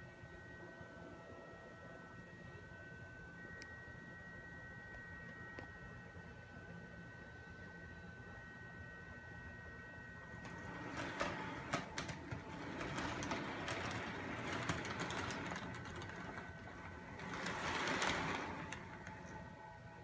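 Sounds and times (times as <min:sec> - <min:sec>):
clicks and rattles: 0:10.4 - 0:19.4
model train motor whirring: 0:10.4 - 0:19.5.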